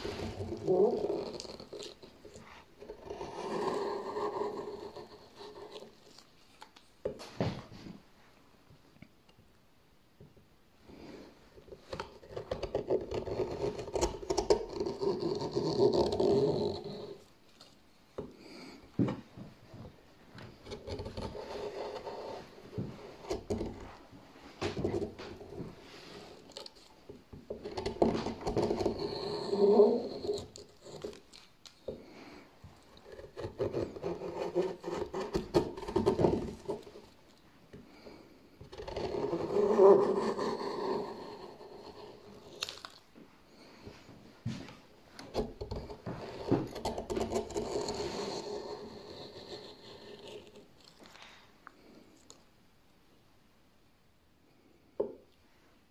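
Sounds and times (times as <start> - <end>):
gouge scraping wood: 0.0 - 7.2, 11.7 - 17.3, 20.5 - 32.1, 32.8 - 37.2, 38.6 - 42.8, 45.2 - 50.9.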